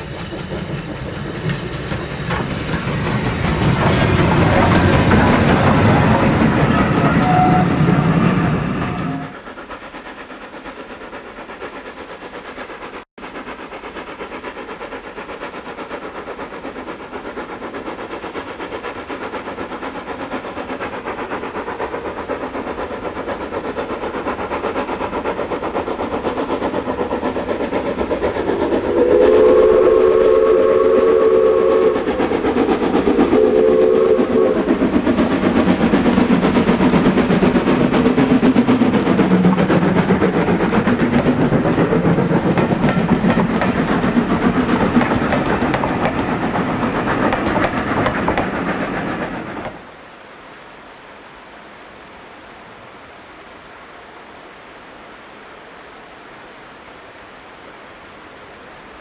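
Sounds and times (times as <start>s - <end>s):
train carriages rumbling past: 0.0s - 50.0s
steam locomotive exhaust beats: 0.0s - 50.2s
steam whistle: 6.6s - 9.5s, 28.9s - 32.2s, 33.3s - 34.8s.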